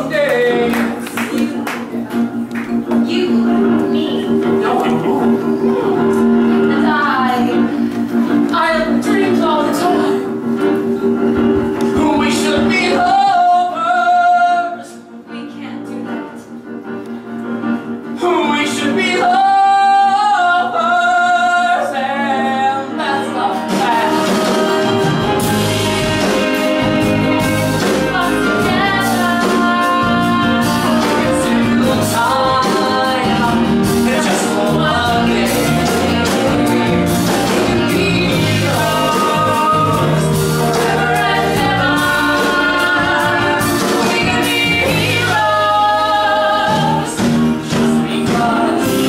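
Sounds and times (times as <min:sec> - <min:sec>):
instrumental accompaniment: 0:00.0 - 0:49.0
person singing with vibrato: 0:18.1 - 0:49.0.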